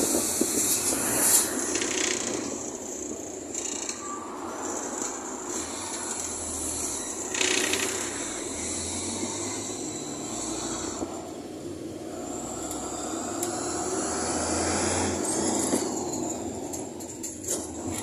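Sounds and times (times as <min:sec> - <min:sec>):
bus body rattling: 0:00.0 - 0:06.5, 0:15.2 - 0:18.0
bus engine and road rumble: 0:00.0 - 0:18.0.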